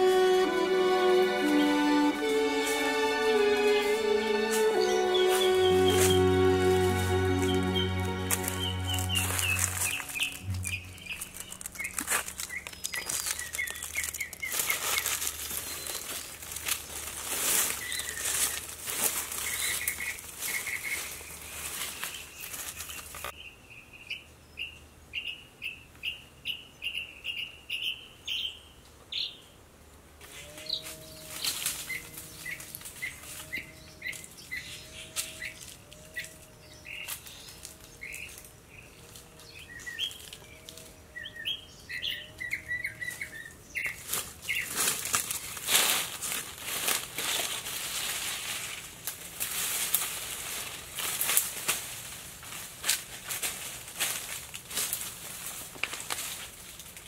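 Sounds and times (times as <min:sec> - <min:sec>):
dry leaves rustling and crackling: 0:00.0 - 0:23.4, 0:30.4 - 0:41.0, 0:43.0 - 0:57.0
forest birds chirping: 0:00.0 - 0:29.6, 0:30.4 - 0:45.6.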